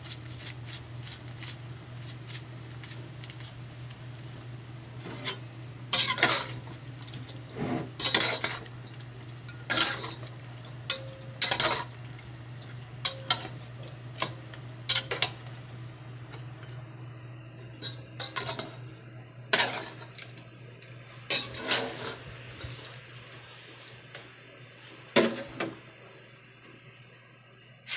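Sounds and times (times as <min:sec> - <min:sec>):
steady low hum: 0:00.0 - 0:27.9
spoon scraping metal pot: 0:07.2 - 0:08.7.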